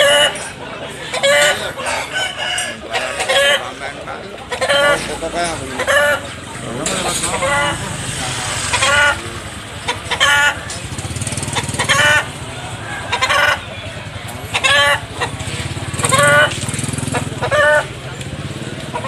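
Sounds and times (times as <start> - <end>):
chicken calling: 0.0 - 3.8, 4.4 - 18.0
motorcycle engine idling: 6.4 - 19.0.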